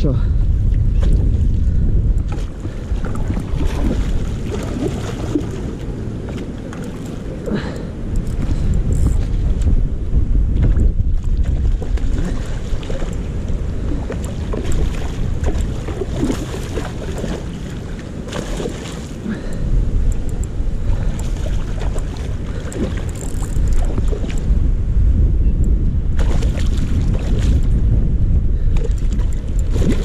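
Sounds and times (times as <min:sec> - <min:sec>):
wind rumbling on microphone: 0:00.0 - 0:30.0
fish splashing and thrashing: 0:01.0 - 0:09.7, 0:10.6 - 0:19.6, 0:20.2 - 0:24.5, 0:26.2 - 0:27.7, 0:28.6 - 0:30.0
rushing river water: 0:02.4 - 0:08.7, 0:10.7 - 0:24.4.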